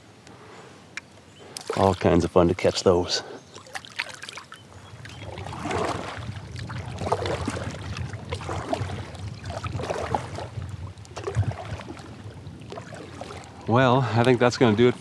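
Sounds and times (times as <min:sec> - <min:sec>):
kayak paddle splashing: 0:01.4 - 0:15.0
low wind rumble: 0:04.6 - 0:15.0.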